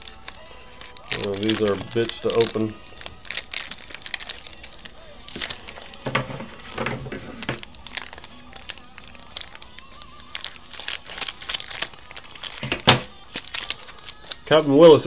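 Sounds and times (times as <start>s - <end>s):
foil pack crinkling: 0.0s - 15.0s.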